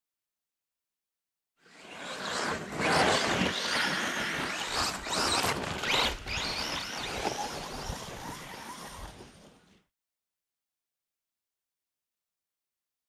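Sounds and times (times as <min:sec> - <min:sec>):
radio-controlled car motors: 0:01.6 - 0:09.9
tyres scrabbling on loose ground: 0:02.4 - 0:09.3.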